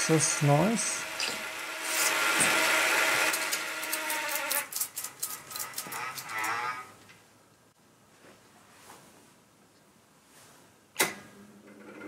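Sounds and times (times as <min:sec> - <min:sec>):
tape machine whirring: 0:00.0 - 0:04.7
mechanism clicking and rattling: 0:03.3 - 0:06.6.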